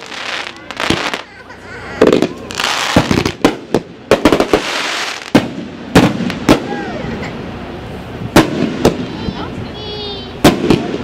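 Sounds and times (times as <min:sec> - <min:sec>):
crackling hiss: 0:00.0 - 0:11.0
firework booms: 0:02.0 - 0:06.9, 0:08.3 - 0:09.6, 0:10.4 - 0:11.0.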